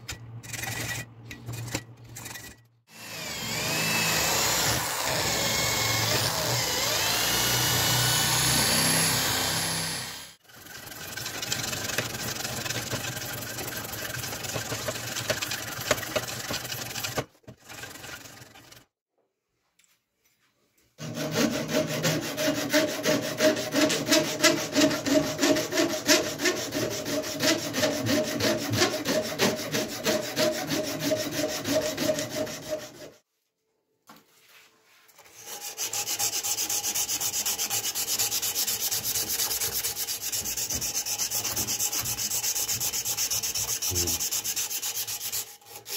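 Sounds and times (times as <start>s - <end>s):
hand file rasping on wood: 21.0s - 33.2s, 35.3s - 45.9s.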